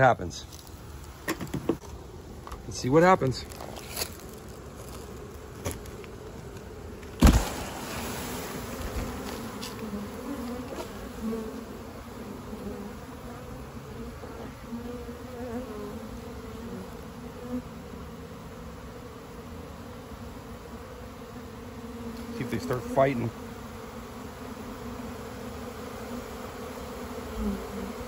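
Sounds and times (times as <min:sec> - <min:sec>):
honeybees buzzing: 0:00.0 - 0:28.0
sharp knock: 0:07.2 - 0:07.6.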